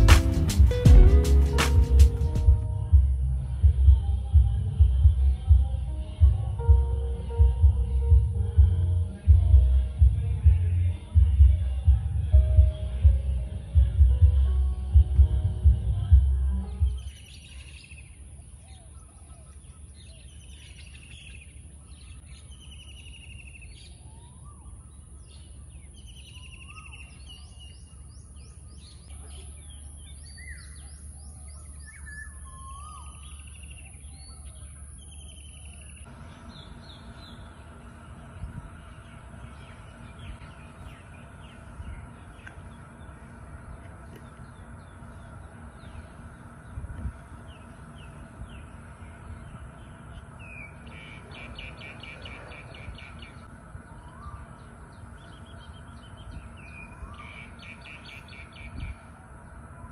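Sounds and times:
faint steady hum: 0.0s - 59.9s
birds calling and chirping: 16.0s - 59.9s.

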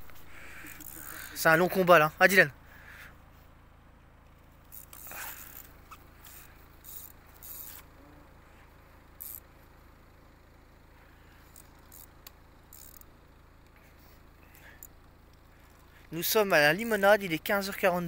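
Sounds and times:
fishing reel rasping: 0.1s - 1.6s, 4.6s - 7.9s, 9.2s - 9.5s, 11.4s - 13.1s.

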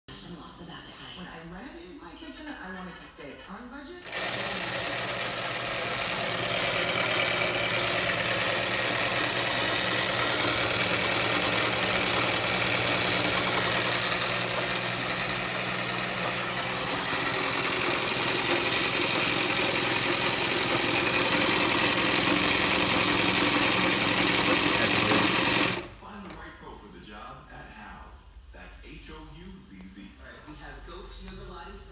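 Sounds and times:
sewing machine stitching: 2.6s - 26.4s.

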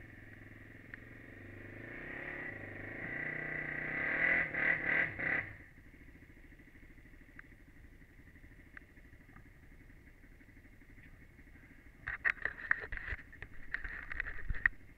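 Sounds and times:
quad engine revving and idling: 0.0s - 7.2s.

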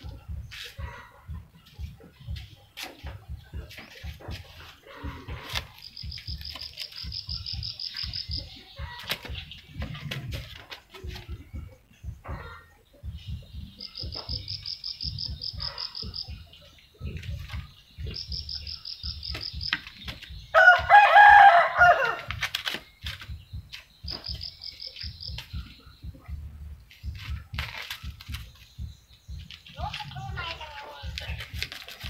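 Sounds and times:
rapid high chirps: 0.0s - 10.1s, 11.0s - 21.6s, 22.8s - 32.0s
rooster crowing: 20.6s - 22.3s.

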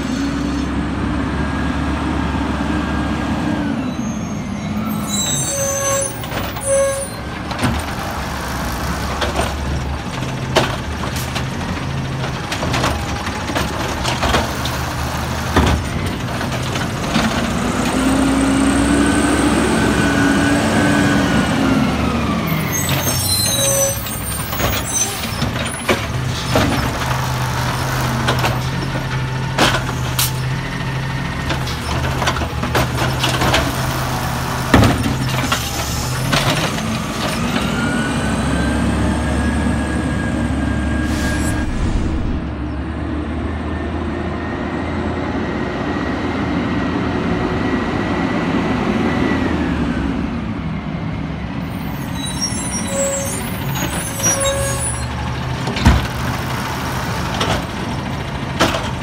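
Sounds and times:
garbage truck engine revving: 7.3s - 23.3s, 23.9s - 43.7s
air brakes hissing: 40.8s - 42.5s.

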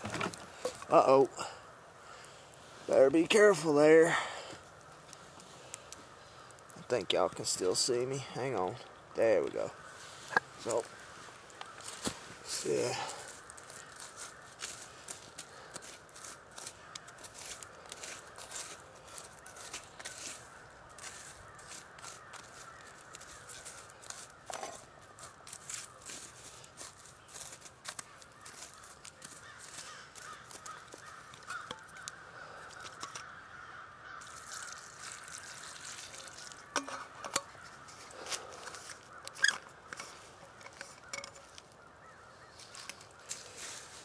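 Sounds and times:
crunching clicks and crackles: 10.3s - 41.8s, 42.6s - 44.0s
stick scraping through wet coals: 34.2s - 41.6s.

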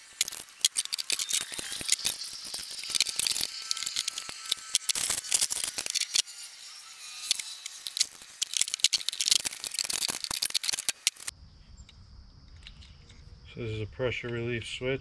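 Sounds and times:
air fittings clinking and rattling: 7.8s - 11.3s.

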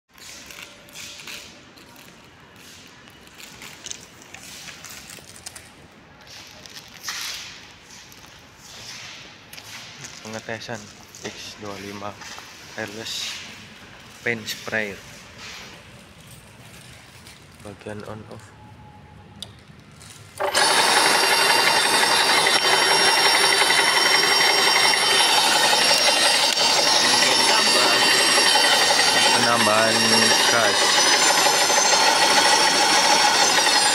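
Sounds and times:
paint sprayer motor whining: 20.4s - 33.9s.

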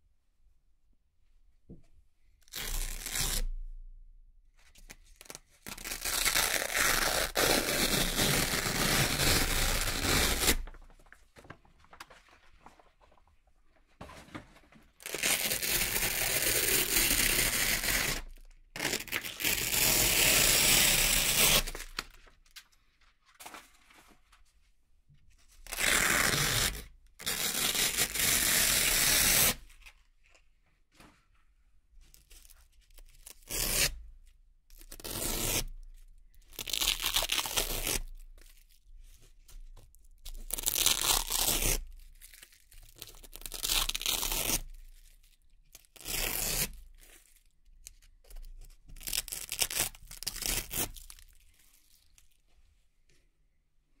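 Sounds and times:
velcro tearing apart: 2.5s - 3.4s, 4.9s - 10.8s, 15.0s - 22.0s, 36.5s - 38.2s, 40.4s - 47.4s, 49.0s - 52.1s.

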